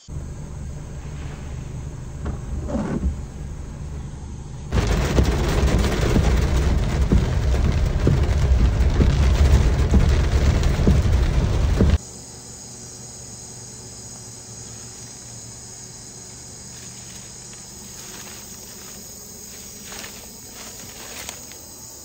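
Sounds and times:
engine and tyre rumble: 0.0 - 12.0, 14.6 - 22.0
knocks from rough road: 4.7 - 12.0.

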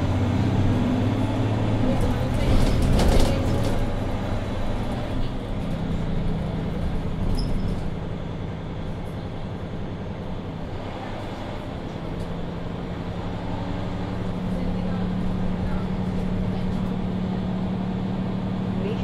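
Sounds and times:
bus diesel engine drone: 0.0 - 19.0
road and tyre noise: 0.0 - 19.0.

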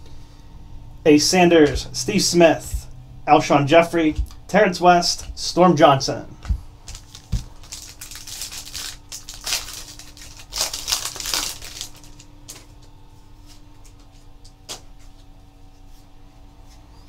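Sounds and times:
foil wrapper tearing and crinkling: 6.8 - 12.6.

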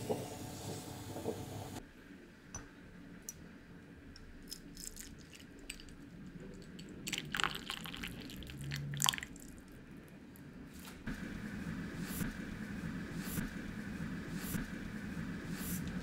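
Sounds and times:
coffee trickling and splashing: 4.5 - 6.0, 6.6 - 9.6.

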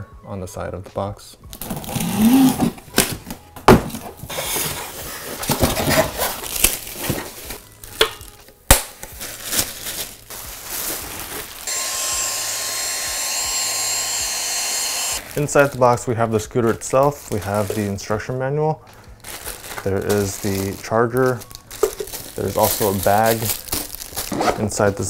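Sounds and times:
packaging scraping and rustling: 1.6 - 8.4, 9.0 - 11.7, 15.1 - 18.2, 18.8 - 25.0.

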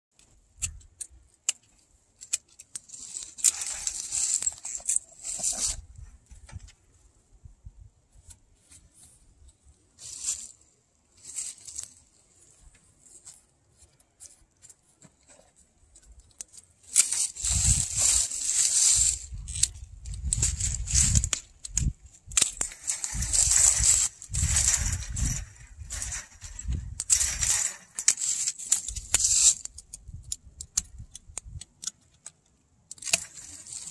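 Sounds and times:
rustling and wood scraping wire: 0.2 - 7.3, 8.1 - 33.9
sharp clicks: 19.0 - 33.9.

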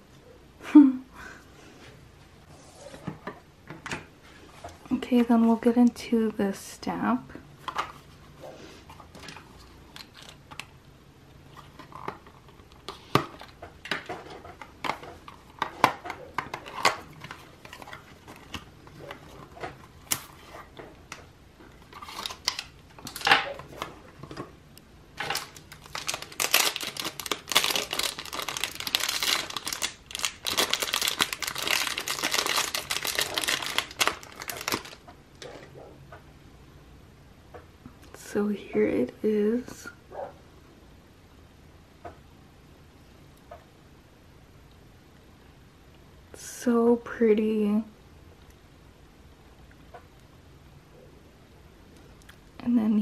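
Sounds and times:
plastic wrap crinkling: 9.0 - 10.7, 11.4 - 24.5, 25.2 - 35.1.

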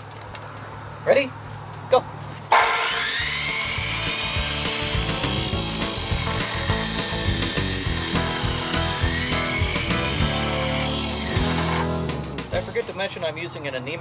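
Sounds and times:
chop saw cutting metal tube: 2.5 - 12.1
music: 3.2 - 13.1.

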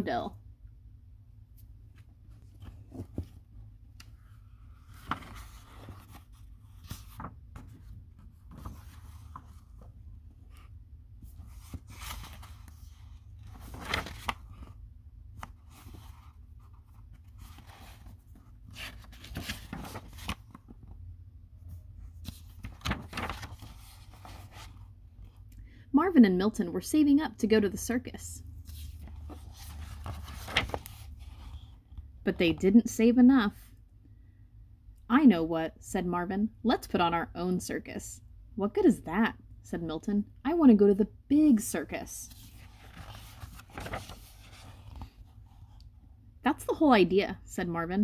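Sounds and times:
book pages turning: 1.6 - 21.0, 22.0 - 25.4, 28.6 - 31.8, 42.3 - 45.9.

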